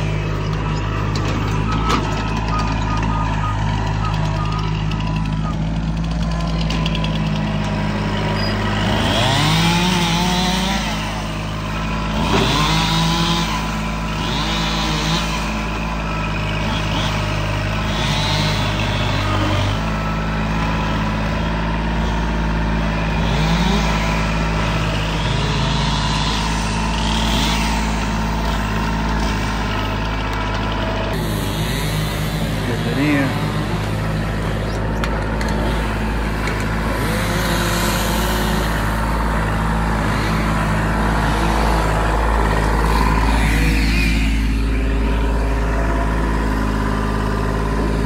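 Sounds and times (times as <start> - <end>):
diesel engine under load: 0.0 - 48.0
high squeaks: 8.2 - 8.7.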